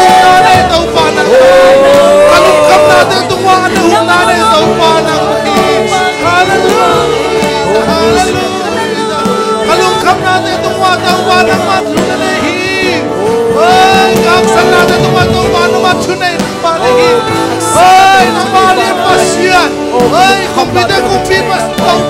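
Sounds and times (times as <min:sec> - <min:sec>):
congregation singing along: 0:00.0 - 0:22.0
man singing: 0:00.0 - 0:22.0
worship band playing: 0:00.0 - 0:22.0.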